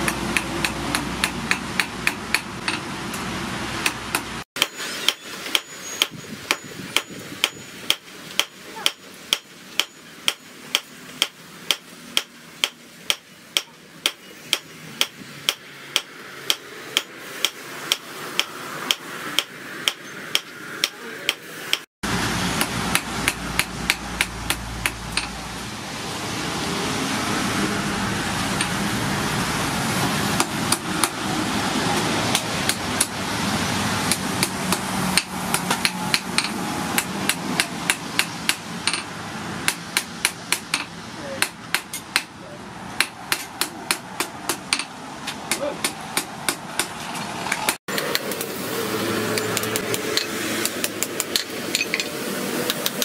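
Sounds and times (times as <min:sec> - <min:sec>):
hammer striking hot metal on anvil: 0:00.0 - 0:03.2, 0:03.8 - 0:21.8, 0:22.6 - 0:25.4, 0:34.1 - 0:39.1, 0:49.3 - 0:53.0.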